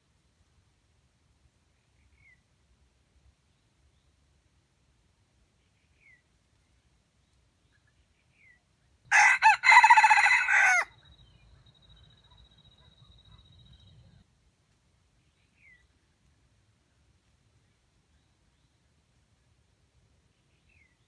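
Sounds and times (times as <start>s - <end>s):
rooster crowing: 9.1s - 10.9s.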